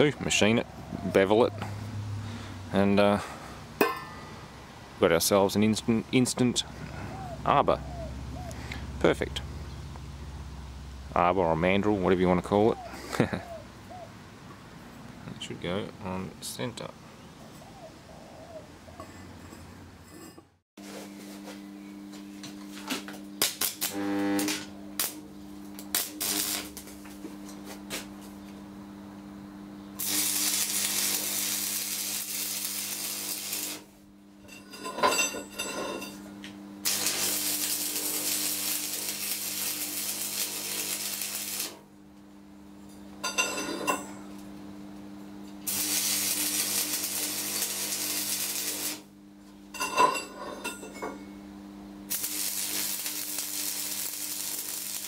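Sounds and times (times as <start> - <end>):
steady hum: 18.9 - 55.0
welding arc crackling and hissing: 23.4 - 27.2, 30.0 - 34.0, 36.8 - 41.8, 45.6 - 49.1, 52.1 - 55.0.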